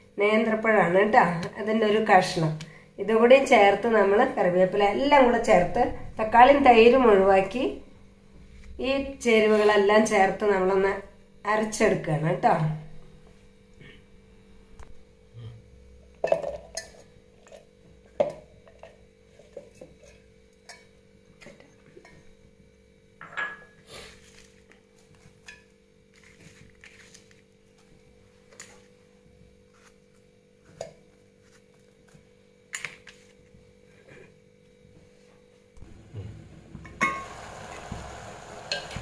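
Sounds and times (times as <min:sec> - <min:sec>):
faint steady hum: 0:00.0 - 0:39.0.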